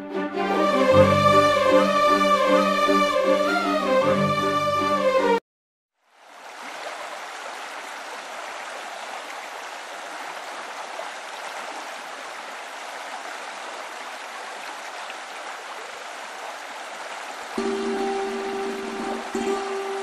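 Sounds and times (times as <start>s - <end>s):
small waterfall splashing: 6.0s - 20.0s.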